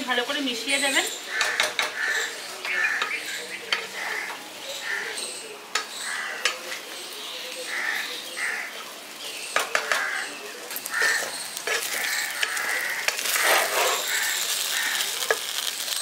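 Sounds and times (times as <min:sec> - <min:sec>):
spatula scraping frying pan: 0:09.7 - 0:16.0.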